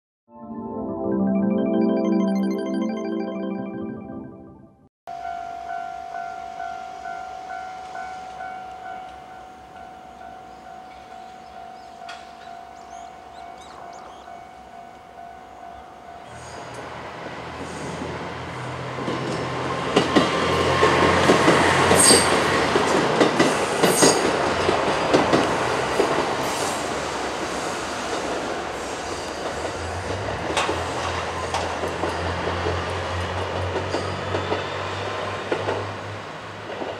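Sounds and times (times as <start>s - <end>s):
level crossing bell ringing: 0.4s - 9.0s
train wheels clicking over rail joints: 18.9s - 36.0s.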